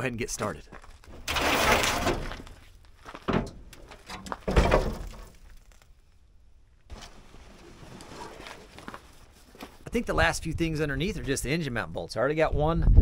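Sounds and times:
rusty metal hood scraping: 0:01.1 - 0:05.5
metal thunks: 0:03.2 - 0:05.4
canvas tarp rustling: 0:06.9 - 0:09.8.

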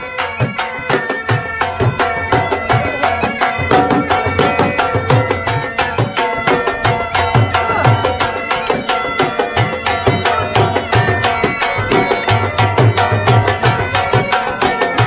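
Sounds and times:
held melody line: 0:00.0 - 0:15.0
fast hand-drum beat: 0:00.2 - 0:15.0.

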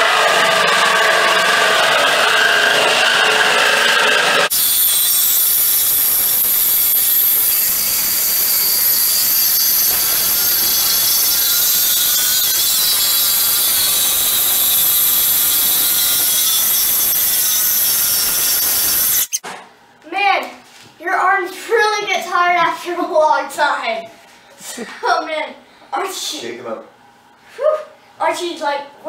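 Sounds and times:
electric jigsaw sawing wood: 0:00.0 - 0:19.4.

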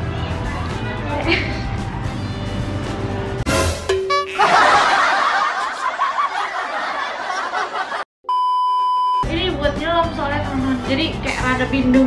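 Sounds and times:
laugh track: 0:01.0 - 0:02.0, 0:04.1 - 0:08.1
test-pattern beep: 0:08.3 - 0:09.3.

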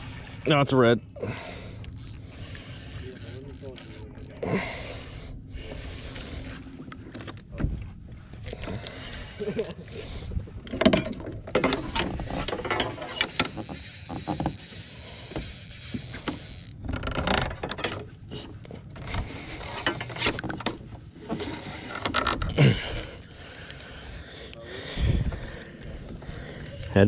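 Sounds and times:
fishing reel clicking: 0:00.0 - 0:00.6, 0:01.8 - 0:04.4, 0:11.5 - 0:17.1.

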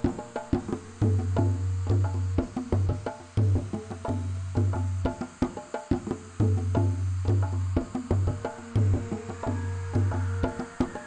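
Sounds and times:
sharp hand-drum strikes: 0:00.0 - 0:11.0
deep ringing drum notes: 0:06.4 - 0:11.0.

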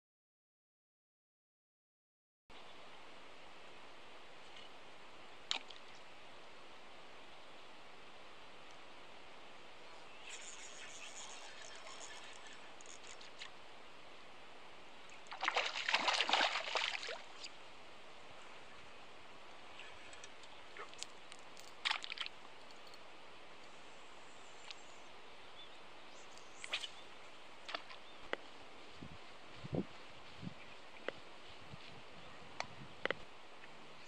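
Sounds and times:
water sloshing and splashing: 0:15.3 - 0:17.5, 0:21.6 - 0:22.4.

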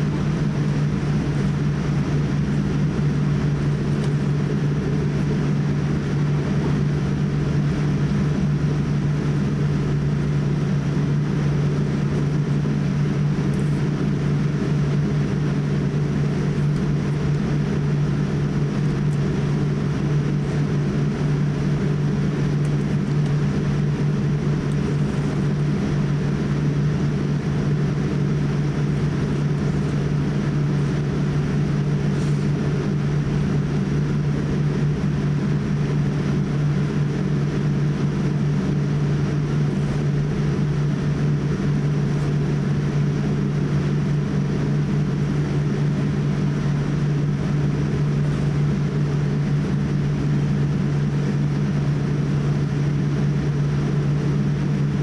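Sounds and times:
aircraft cabin hum: 0:00.0 - 0:55.0.

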